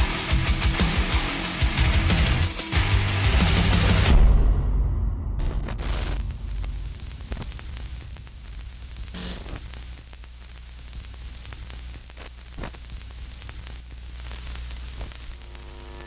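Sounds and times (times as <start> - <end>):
steady low rumble: 4.3 - 9.2
glitch bursts: 5.4 - 10.0
static crackles: 5.4 - 16.0.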